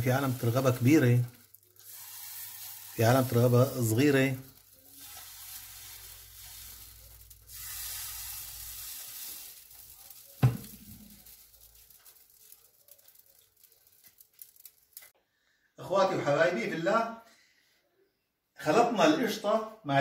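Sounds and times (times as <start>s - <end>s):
batter sizzling in a frying pan: 0.0s - 15.1s.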